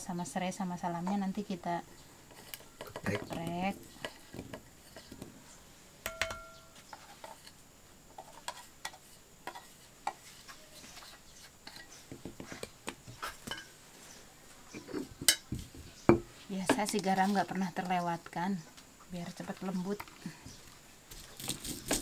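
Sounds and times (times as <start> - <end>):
ringing clink: 6.1 - 6.7.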